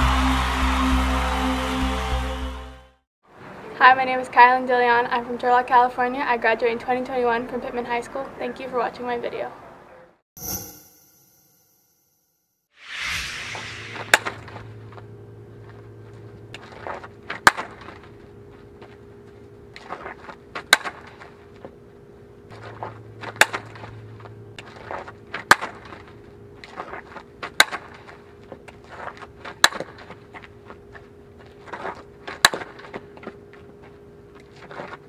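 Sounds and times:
bat cracking softball: 14.0 - 14.7, 16.6 - 18.1, 20.6 - 21.3, 22.6 - 23.9, 24.8 - 25.9, 27.4 - 28.1, 29.5 - 30.1, 31.8 - 33.0.

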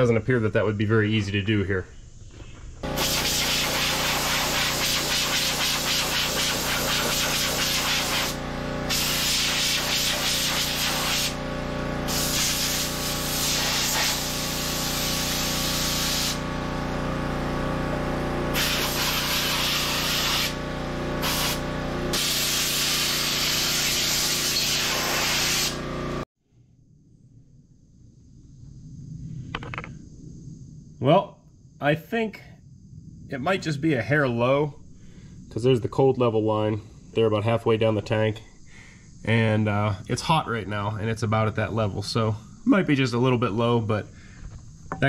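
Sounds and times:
compressed air hissing from blow gun: 2.8 - 11.4, 12.1 - 16.4, 18.5 - 20.6, 21.2 - 25.8
steady low hum: 25.7 - 45.0.

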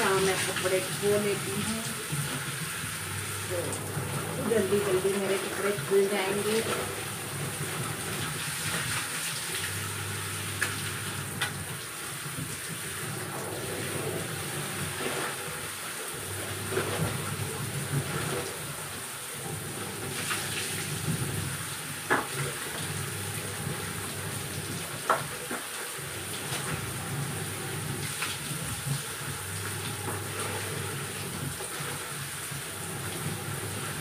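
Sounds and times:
water splashing: 0.0 - 11.9
fabric scrubbed and sloshed in water: 0.0 - 18.8, 19.6 - 34.0.

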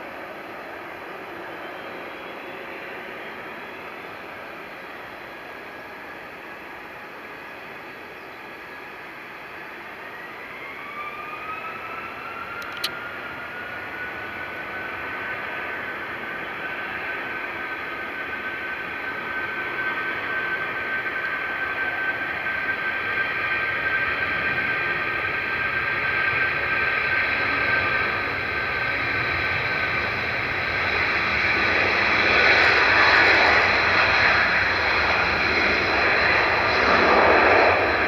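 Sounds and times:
jet engines whining: 0.0 - 38.0
brief click: 12.6 - 13.0.

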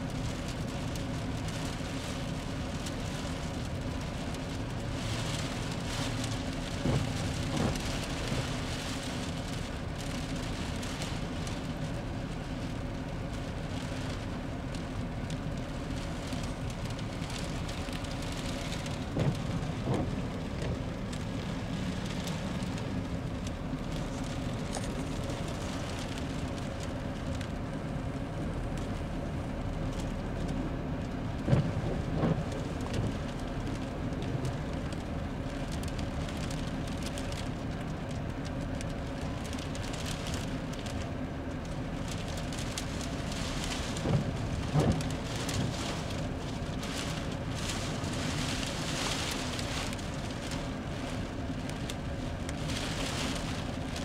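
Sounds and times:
rain on a car windshield: 0.0 - 54.0
windshield wiper thumps: 6.8 - 7.8, 19.0 - 20.8, 31.4 - 33.1, 43.9 - 45.8.

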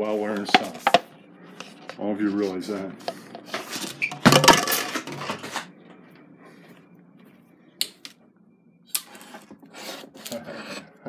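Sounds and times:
household objects clattering: 3.6 - 5.7.

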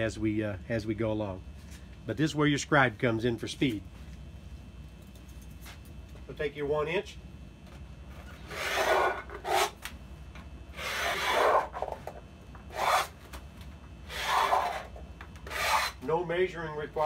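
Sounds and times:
scribe scratching sheet metal: 8.4 - 9.8, 10.8 - 11.9, 12.7 - 13.2, 14.1 - 16.0.

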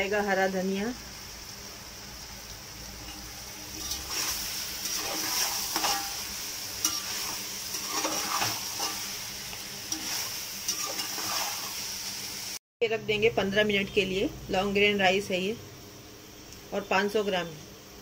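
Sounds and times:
food sizzling in a pot: 0.0 - 12.6, 13.4 - 18.0
spatula scraping metal pot: 3.0 - 9.2, 9.9 - 11.8.

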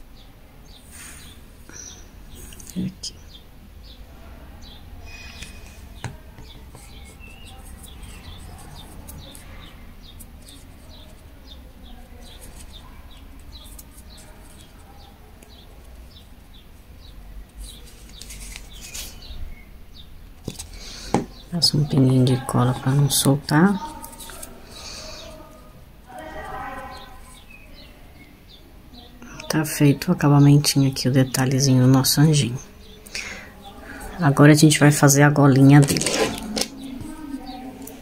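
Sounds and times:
small bird chirping: 4.6 - 25.5.

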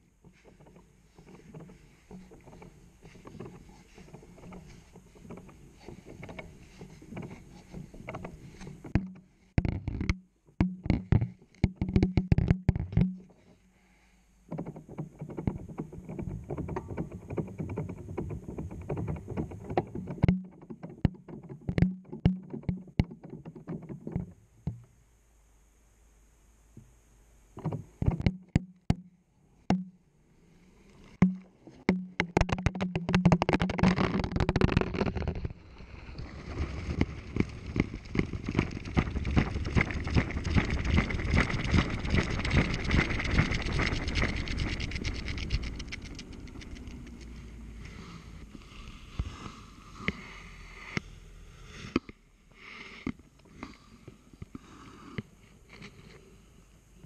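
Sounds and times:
low hum: 35.4 - 52.6.

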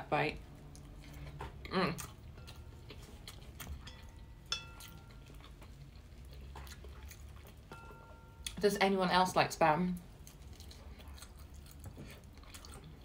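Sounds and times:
plate ringing: 3.9 - 5.2.

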